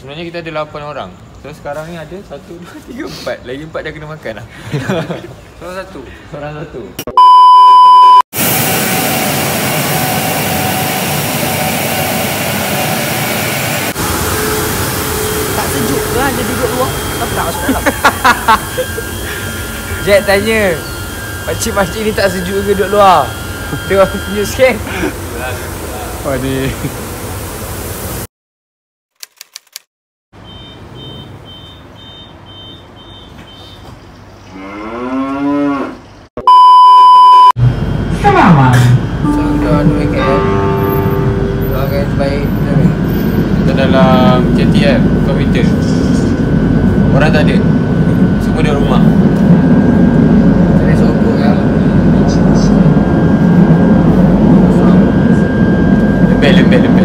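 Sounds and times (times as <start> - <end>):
loud steady bleep tone: 7.1 - 24.9, 30.4 - 33.4, 36.4 - 37.6, 38.4 - 43.7, 52.3 - 57.0
faint train whine: 8.4 - 28.2, 37.6 - 57.0
train rushing past: 8.4 - 28.3, 37.6 - 57.0
mooing call rising in pitch: 34.5 - 36.0.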